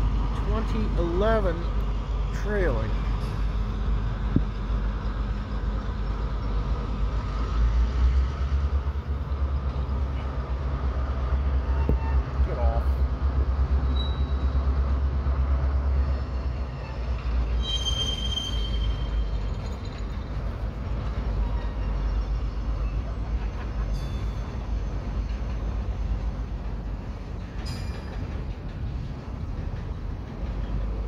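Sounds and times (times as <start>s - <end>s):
freight train rolling rumble: 0.0s - 31.0s
train wheel squealing: 11.3s - 12.7s, 13.7s - 15.0s, 16.0s - 31.0s.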